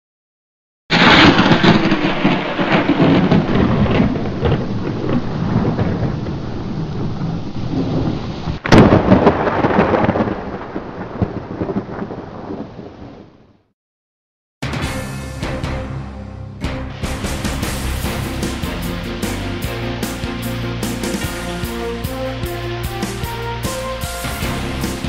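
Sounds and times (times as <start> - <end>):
heavy rain: 0.9 - 13.3, 17.0 - 25.0
sharp thunderclap: 0.9 - 13.3, 17.0 - 22.3, 23.7 - 25.0
thunder: 0.9 - 13.6, 17.0 - 20.2.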